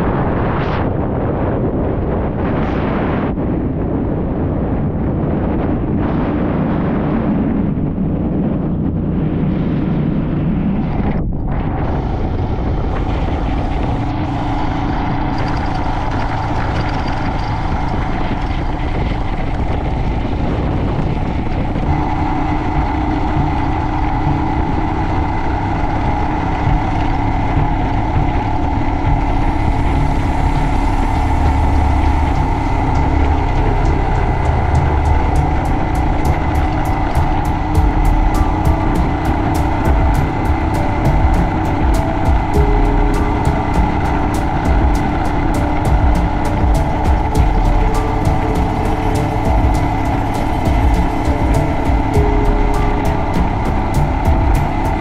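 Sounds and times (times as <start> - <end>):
motorcycle engine running: 11.6 - 55.0.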